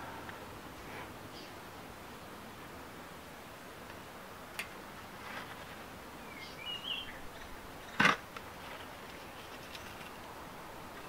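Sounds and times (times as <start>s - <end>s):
outdoor background noise: 0.0s - 11.0s
bird chirping: 6.2s - 8.0s.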